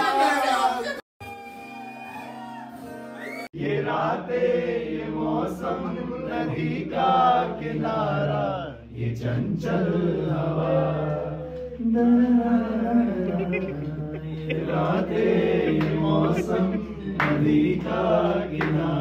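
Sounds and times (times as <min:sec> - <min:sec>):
man singing into microphone: 0:10.8 - 0:19.0.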